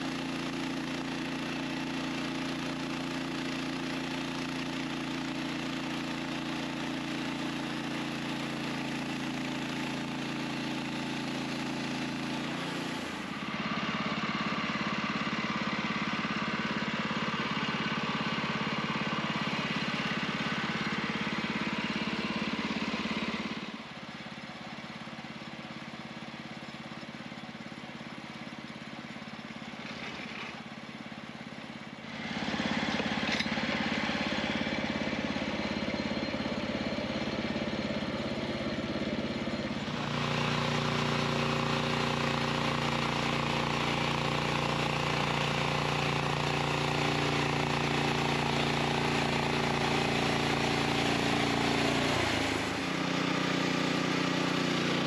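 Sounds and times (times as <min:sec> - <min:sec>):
sawmill engine running: 0:00.0 - 0:55.0
bandsaw cutting log: 0:11.8 - 0:13.3, 0:39.9 - 0:55.0.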